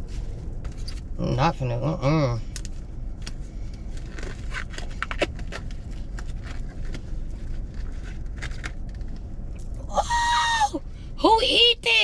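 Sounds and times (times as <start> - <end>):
low hum in car cabin: 0.0 - 12.0.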